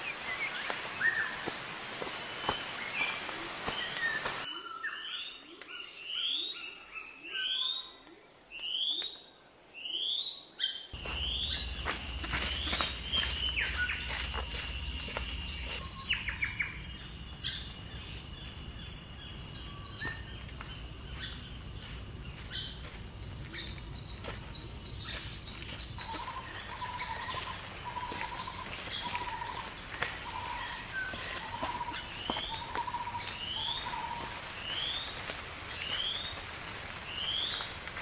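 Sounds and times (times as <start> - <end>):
birds chirping and calling: 10.6 - 35.2
high insect buzz: 11.0 - 21.9.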